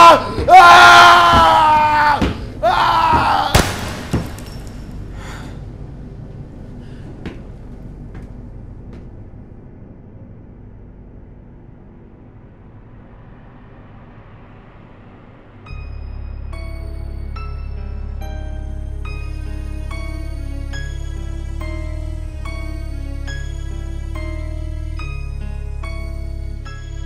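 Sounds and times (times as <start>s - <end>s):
man screaming: 0.0s - 3.7s
sudden loud bang: 3.5s - 4.8s
low drone: 4.0s - 27.0s.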